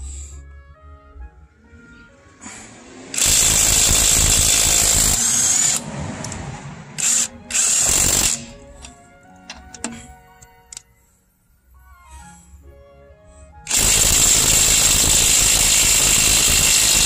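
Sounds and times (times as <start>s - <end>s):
impact wrench hammering lug nut: 3.2s - 5.8s, 13.7s - 17.0s.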